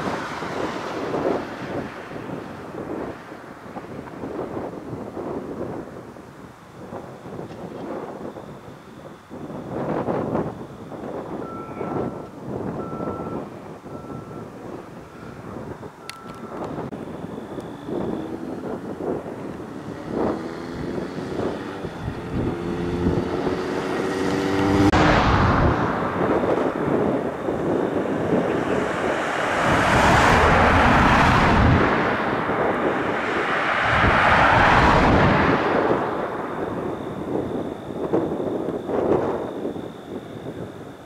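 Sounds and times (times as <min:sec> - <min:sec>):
vehicles passing on highway: 0:00.0 - 0:41.0
engine note climbing: 0:11.4 - 0:38.7.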